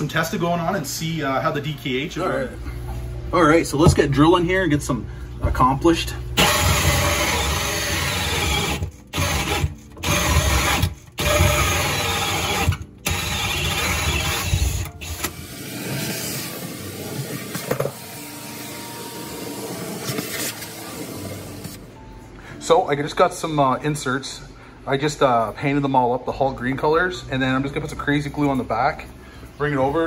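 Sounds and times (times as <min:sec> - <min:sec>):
vacuum running: 0:02.2 - 0:22.1
cordless drill with hole saw: 0:06.4 - 0:21.8.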